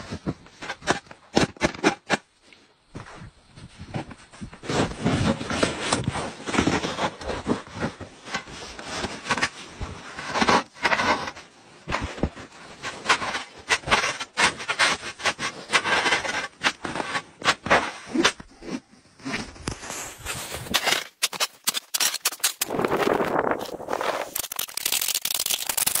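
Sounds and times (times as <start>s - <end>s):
shovel scraping packed snow: 12.7s - 25.0s.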